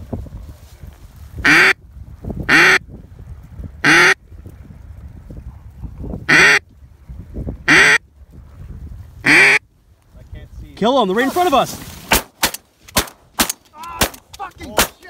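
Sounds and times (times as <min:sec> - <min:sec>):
duck call quacks: 0:01.4 - 0:01.8, 0:02.5 - 0:02.8, 0:03.8 - 0:04.2, 0:06.3 - 0:06.6, 0:07.7 - 0:08.0, 0:09.2 - 0:09.6.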